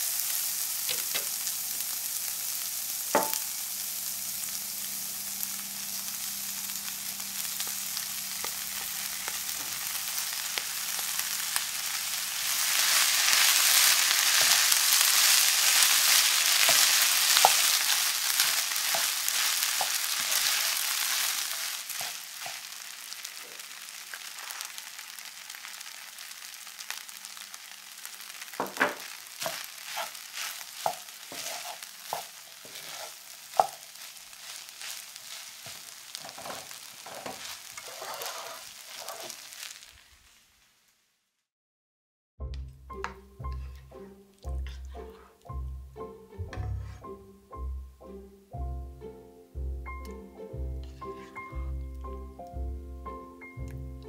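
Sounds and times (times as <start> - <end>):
vegetables sizzling in oil: 0.0 - 41.3, 50.0 - 54.0
spatula tapping pan: 3.2 - 3.5, 12.6 - 22.7, 28.6 - 35.0
wooden spatula stirring and scraping: 8.4 - 24.8, 28.1 - 39.9, 43.4 - 45.5, 46.6 - 47.1, 50.8 - 51.7.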